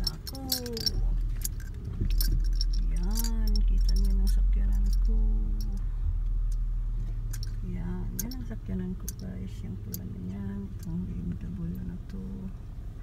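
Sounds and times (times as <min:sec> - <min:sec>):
light jingling clicks: 0:00.0 - 0:05.8, 0:07.3 - 0:11.0
steady low rumble: 0:00.0 - 0:13.0.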